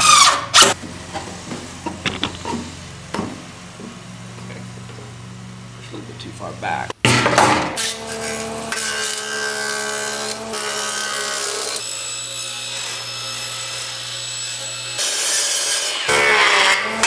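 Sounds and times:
table saw ripping wood: 0:00.0 - 0:00.8, 0:07.0 - 0:17.0
jointer planing wood: 0:07.8 - 0:17.0.

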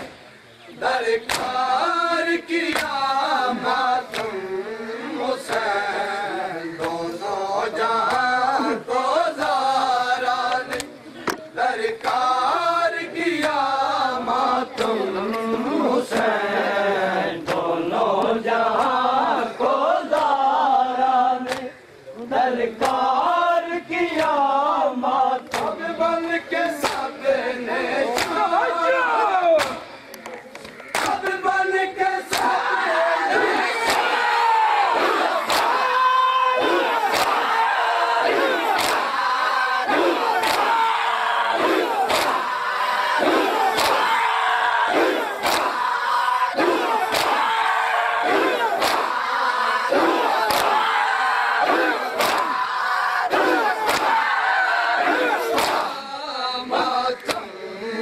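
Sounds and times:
men chanting in unison: 0:00.0 - 0:58.0
hands slapping chests: 0:01.2 - 0:01.6, 0:02.7 - 0:03.0, 0:04.1 - 0:04.4, 0:06.8 - 0:07.1, 0:08.0 - 0:08.4, 0:10.6 - 0:12.2, 0:13.4 - 0:13.6, 0:17.4 - 0:19.0, 0:20.1 - 0:20.4, 0:21.4 - 0:21.7, 0:22.8 - 0:23.1, 0:25.4 - 0:25.8, 0:26.8 - 0:27.2, 0:28.1 - 0:28.4, 0:29.6 - 0:31.4, 0:32.3 - 0:32.6, 0:33.4 - 0:34.3, 0:35.0 - 0:36.0, 0:36.6 - 0:37.5, 0:38.3 - 0:39.2, 0:39.9 - 0:40.8, 0:41.6 - 0:42.6, 0:43.2 - 0:44.2, 0:45.0 - 0:45.9, 0:46.6 - 0:47.5, 0:48.3 - 0:49.2, 0:50.0 - 0:50.9, 0:51.6 - 0:52.6, 0:53.3 - 0:54.2, 0:55.1 - 0:55.9, 0:57.2 - 0:57.5.

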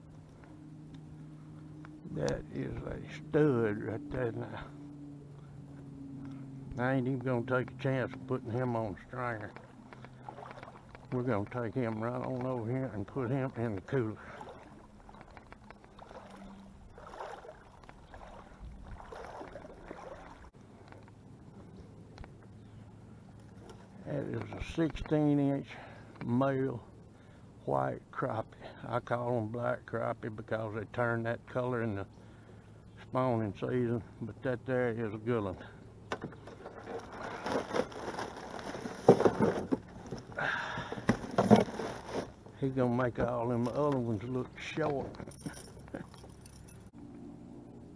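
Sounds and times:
water sloshing around wading legs: 0:08.6 - 0:20.6, 0:36.2 - 0:42.4
rustling and scraping in cooler: 0:36.1 - 0:43.4.

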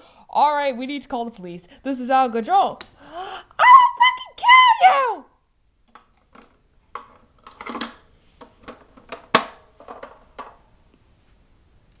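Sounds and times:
plastic toys knocking: 0:05.9 - 0:10.6.

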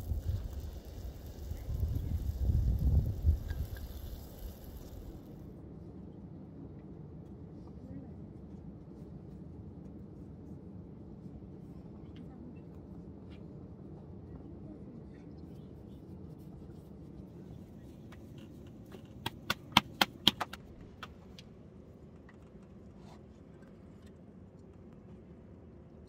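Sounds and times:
low steady background noise: 0:00.0 - 0:26.0
hands slapping bread dough: 0:19.0 - 0:21.2.

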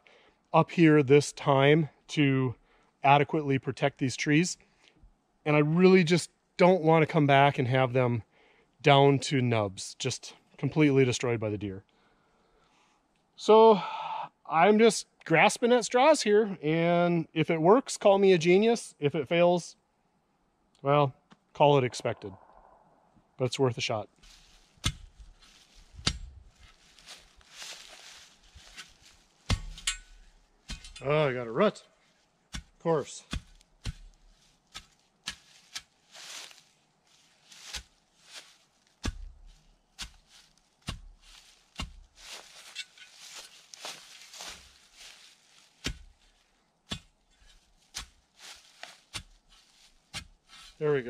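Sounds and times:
dry leaves rustling: 0:24.2 - 0:30.9, 0:33.3 - 0:50.8
post scraping in ground: 0:24.2 - 0:31.1, 0:32.0 - 0:51.0.

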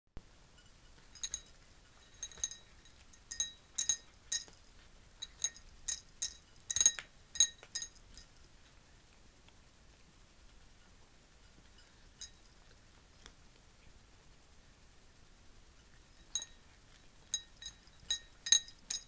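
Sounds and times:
kibble clinking in ceramic bowl: 0:05.2 - 0:08.0, 0:17.4 - 0:19.0.

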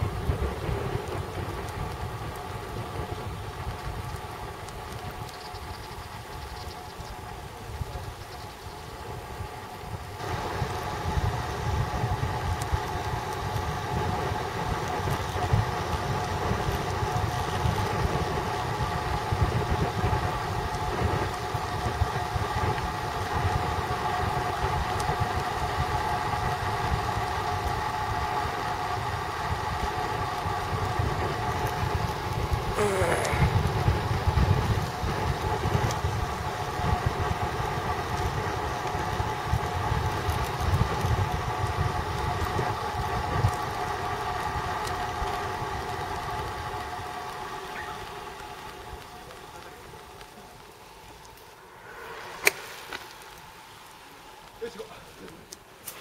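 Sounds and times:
road rumble: 0:00.0 - 0:56.0
steady whine: 0:46.4 - 0:55.7
wind rush: 0:50.8 - 0:54.6.

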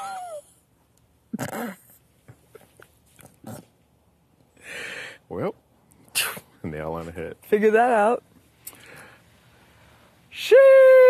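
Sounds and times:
breathy exhale: 0:04.6 - 0:05.2.

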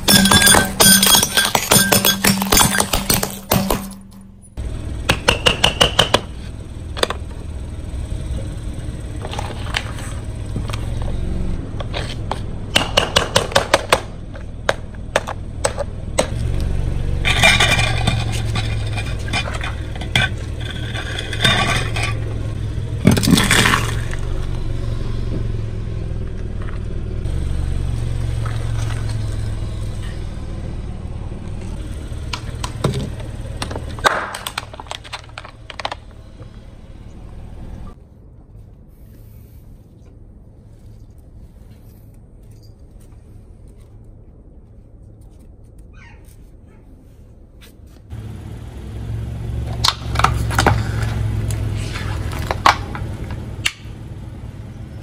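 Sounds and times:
tyre crushing objects: 0:00.0 - 0:04.2, 0:23.0 - 0:24.3
car engine running at low speed: 0:03.2 - 0:12.8, 0:13.8 - 0:38.1, 0:48.1 - 0:55.0.

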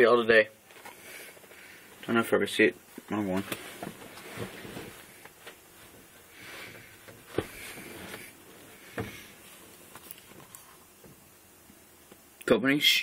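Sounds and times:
soft handling rustling: 0:02.9 - 0:11.2.

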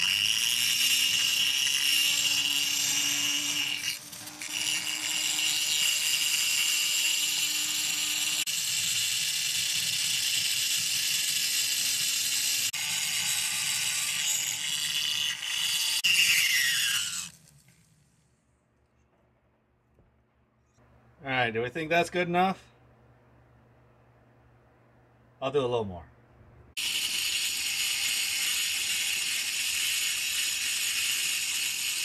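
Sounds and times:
rotary tool grinding metal: 0:00.0 - 0:18.1, 0:26.8 - 0:32.0.

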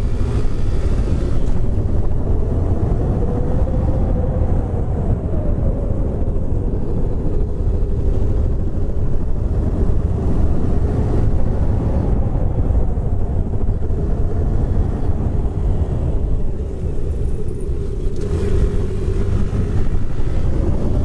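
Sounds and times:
wind rumble on microphone: 0:00.0 - 0:21.0.

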